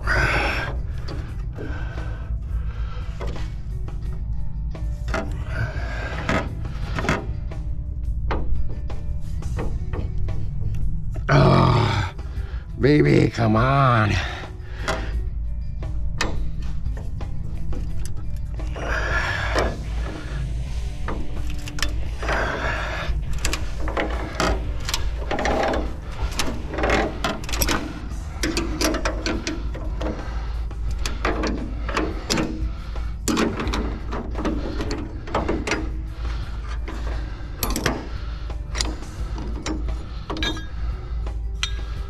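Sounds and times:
steady low hum: 0:00.0 - 0:42.0
pliers clicking on metal nut: 0:37.6 - 0:38.1.

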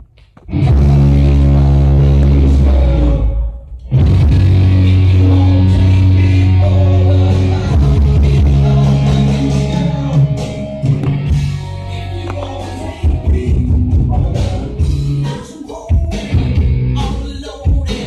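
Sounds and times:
rock song over home stereo: 0:00.0 - 0:18.0.

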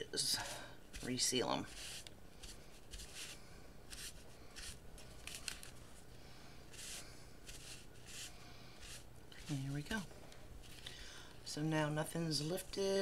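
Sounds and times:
iron swishing over paper: 0:00.4 - 0:05.7, 0:06.7 - 0:10.0.

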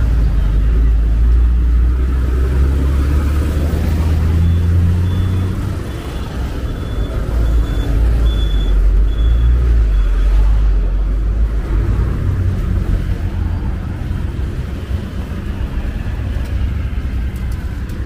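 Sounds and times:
faint high beeps: 0:04.4 - 0:10.3.

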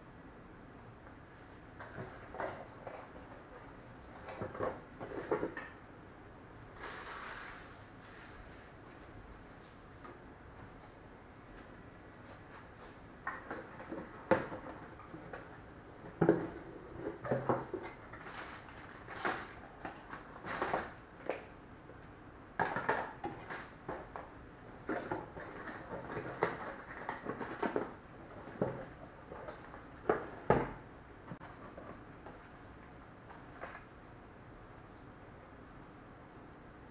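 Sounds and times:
card and paper rustling: 0:17.8 - 0:21.0.

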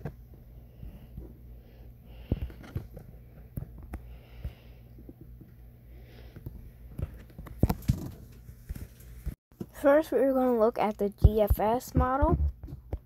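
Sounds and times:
steady low hum: 0:00.0 - 0:13.0
soft breaths: 0:00.3 - 0:07.0.

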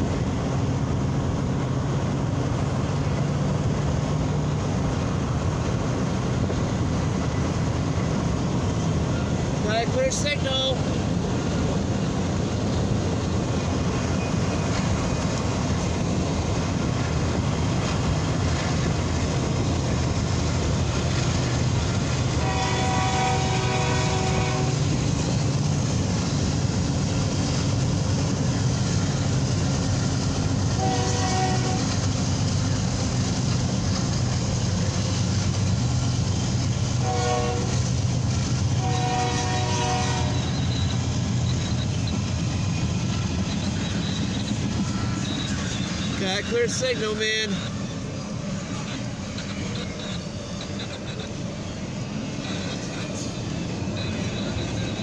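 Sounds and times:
passing train rumble: 0:00.0 - 0:55.0
locomotive horn blasts: 0:22.3 - 0:24.9, 0:30.8 - 0:32.0, 0:37.0 - 0:37.8, 0:38.7 - 0:40.6.

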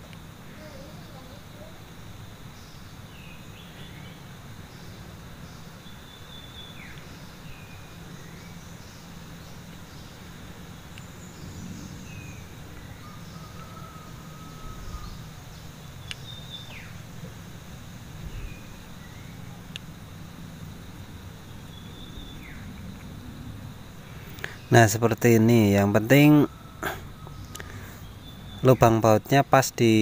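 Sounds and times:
low background rumble: 0:00.0 - 0:29.6
bird chirps: 0:02.5 - 0:10.3, 0:10.9 - 0:17.4, 0:21.4 - 0:22.8, 0:24.3 - 0:30.0
sharp small clicks: 0:16.0 - 0:16.8, 0:19.7 - 0:19.9.

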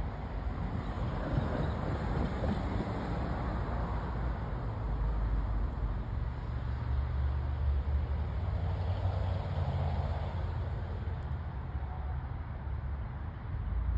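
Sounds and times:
freight train rumbling: 0:00.0 - 0:06.4.

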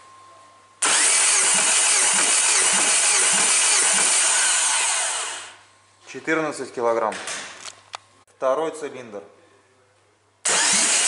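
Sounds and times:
starter motor cranking engine: 0:00.8 - 0:05.6, 0:10.5 - 0:11.0.

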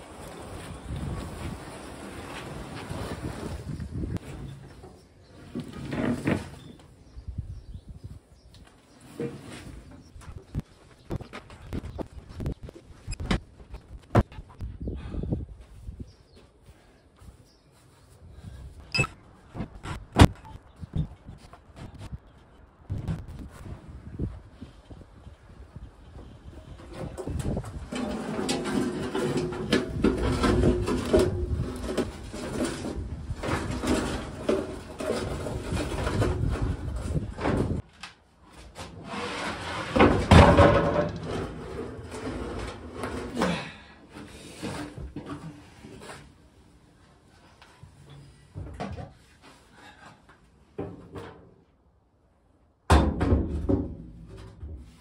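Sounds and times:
table saw wheeled over gravel: 0:26.8 - 0:37.8, 0:38.8 - 0:43.4.

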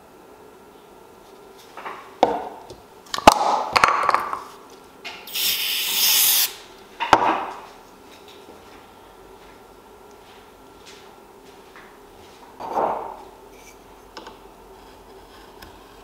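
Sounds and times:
aerosol spray hissing: 0:05.3 - 0:06.6.

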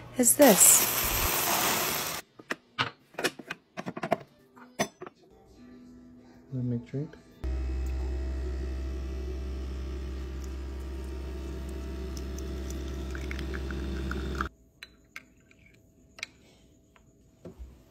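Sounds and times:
coffee machine humming: 0:07.4 - 0:14.5
liquid pouring: 0:10.4 - 0:14.5.

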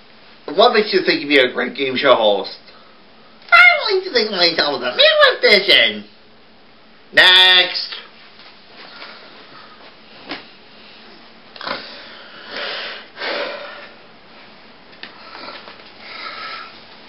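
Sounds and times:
person breathing: 0:10.8 - 0:14.0, 0:15.1 - 0:16.8.

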